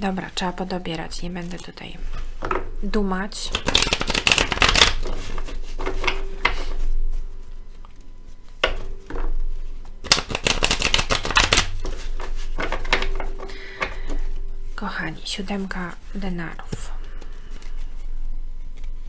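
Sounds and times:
cards being shuffled: 0:03.5 - 0:06.8, 0:10.0 - 0:14.2.

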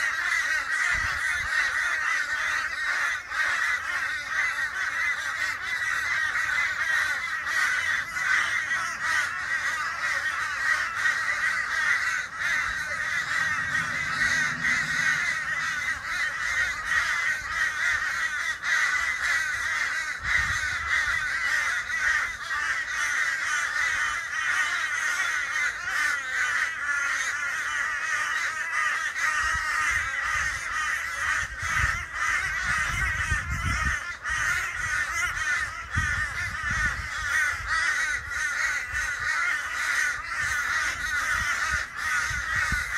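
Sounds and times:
flock of crows cawing: 0:00.0 - 0:42.9.

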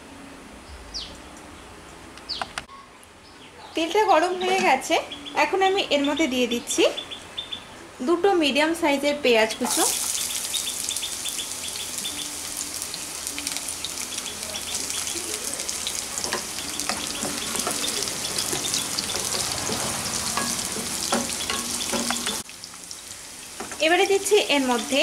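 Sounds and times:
onions sizzling in oil: 0:09.5 - 0:25.0
spatula stirring: 0:14.1 - 0:22.4.

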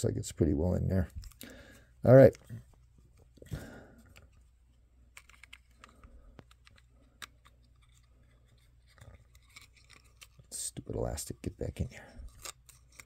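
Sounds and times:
plastic figure parts clicking: 0:05.1 - 0:10.4.

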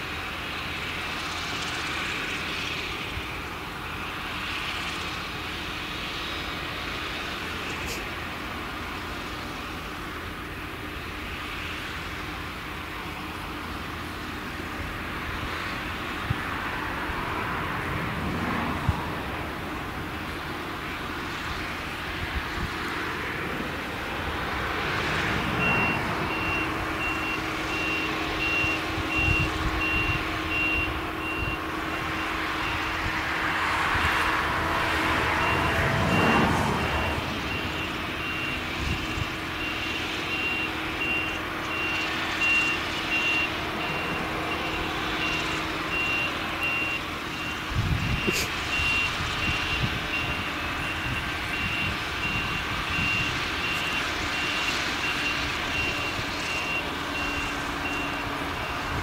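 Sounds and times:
harvester engine running: 0:00.0 - 0:59.0
vehicle reversing alarm beeping: 0:23.2 - 0:59.0.

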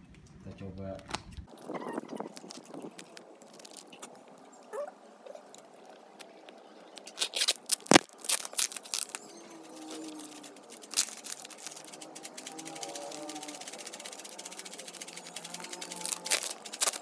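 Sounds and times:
parcel tape crackling: 0:01.1 - 0:17.0
scissors cutting tape: 0:07.0 - 0:09.2, 0:15.0 - 0:17.0.

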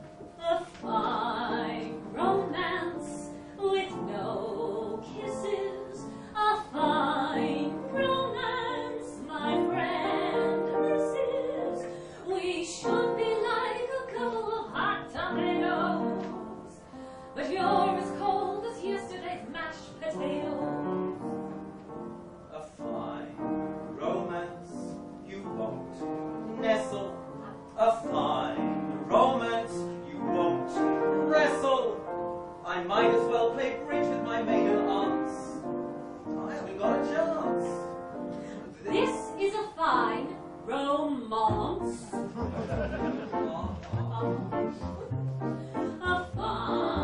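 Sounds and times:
musical accompaniment: 0:00.0 - 0:47.0
woman singing operatically: 0:00.4 - 0:16.2, 0:17.4 - 0:20.8, 0:38.9 - 0:42.2, 0:45.9 - 0:47.0.

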